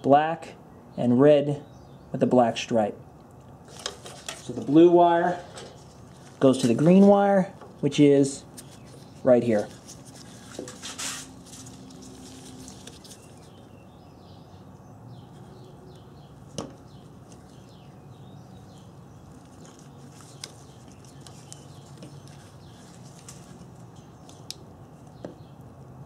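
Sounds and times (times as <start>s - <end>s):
soft rustling of gloved hands: 3.6s - 14.0s, 15.2s - 25.2s.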